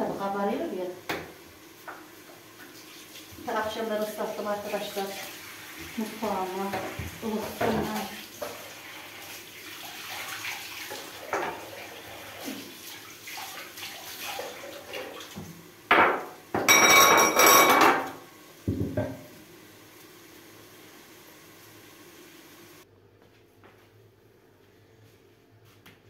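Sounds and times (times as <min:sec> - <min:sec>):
tap water running into sink: 0:01.1 - 0:16.7
dishes and utensils clattering: 0:10.9 - 0:11.8, 0:15.9 - 0:18.2.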